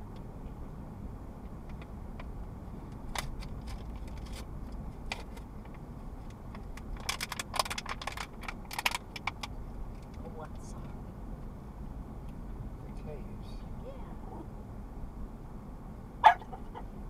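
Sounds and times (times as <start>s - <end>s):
car interior rumble: 0.0s - 17.0s
light clicks and rattles: 1.4s - 11.0s.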